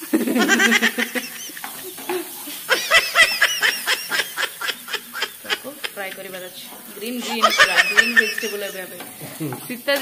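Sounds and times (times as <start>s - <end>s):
person giggling: 0.0s - 6.3s, 7.2s - 8.7s.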